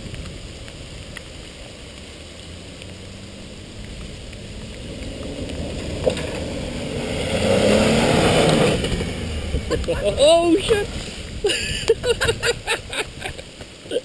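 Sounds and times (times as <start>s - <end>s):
engine pulling under load: 2.3s - 11.4s.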